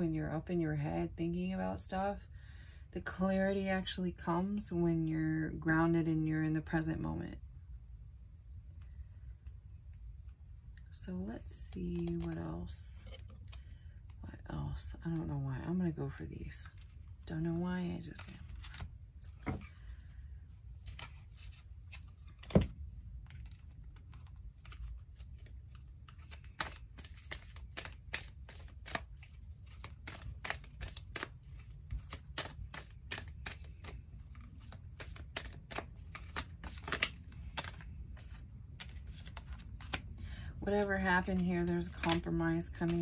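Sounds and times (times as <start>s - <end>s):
cards being shuffled: 11.4s - 14.2s, 16.7s - 17.2s, 18.0s - 43.0s.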